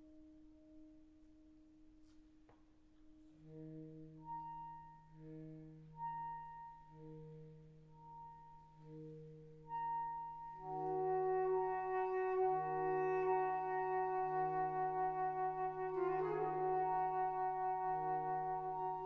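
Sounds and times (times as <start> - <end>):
saxophone quartet playing chords: 10.6 - 19.0.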